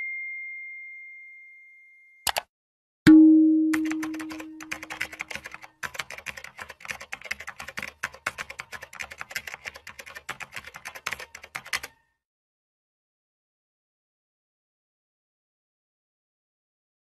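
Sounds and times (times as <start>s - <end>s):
chime tone: 0.0s - 2.2s
rapid keyboard typing: 2.3s - 2.5s, 3.8s - 12.0s.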